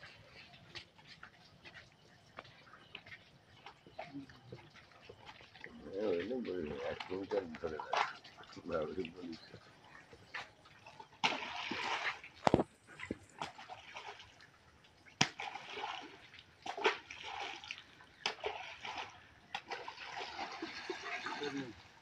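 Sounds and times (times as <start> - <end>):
fish splashing into water: 10.9 - 21.7.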